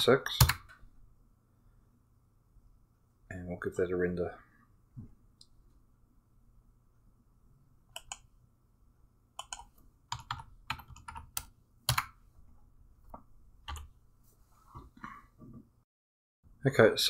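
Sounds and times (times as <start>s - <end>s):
keyboard and mouse clicks: 7.9s - 8.3s, 9.4s - 12.2s.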